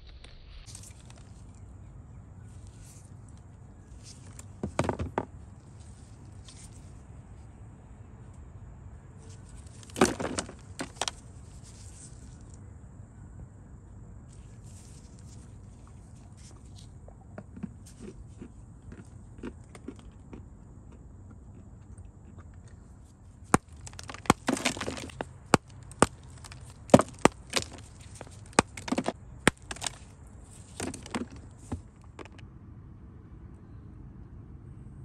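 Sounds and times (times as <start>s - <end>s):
clay crumbling crackle: 0.1s - 1.7s, 9.2s - 12.6s, 14.3s - 20.2s, 23.4s - 32.4s.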